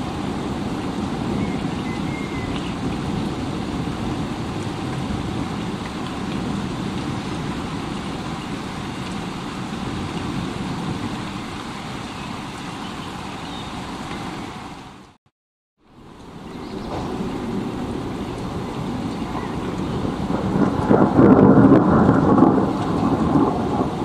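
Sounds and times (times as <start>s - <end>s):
heavy rain hissing: 15.9s - 24.0s
deep thunder rumble: 16.0s - 24.0s.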